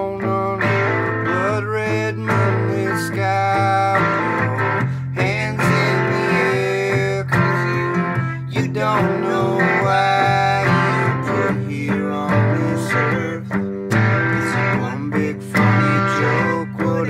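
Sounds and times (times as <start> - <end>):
acoustic guitar strumming chords: 0.0 - 17.0
electric guitar playing: 0.0 - 17.0.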